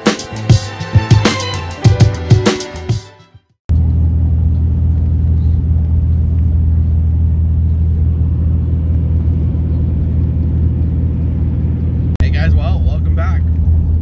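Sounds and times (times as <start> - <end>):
truck engine and road drone: 3.7 - 14.0.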